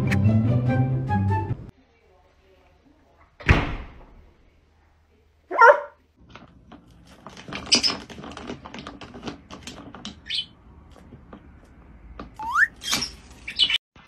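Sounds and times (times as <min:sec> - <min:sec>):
dog barking: 0:05.5 - 0:06.0
parrot chirp: 0:12.4 - 0:13.8.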